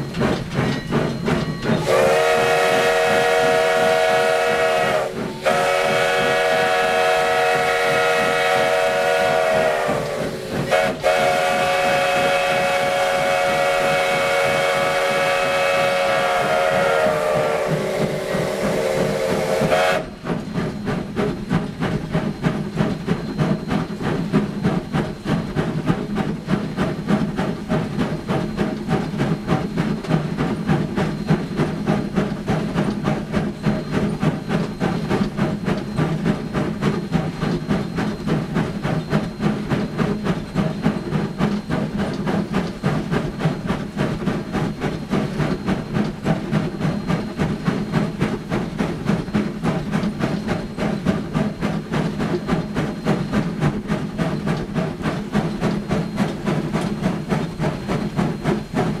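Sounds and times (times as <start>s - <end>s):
locomotive running gear: 0.0s - 3.7s, 15.9s - 59.0s
locomotive steam hiss: 0.0s - 59.0s
steam locomotive exhaust beats: 0.0s - 59.0s.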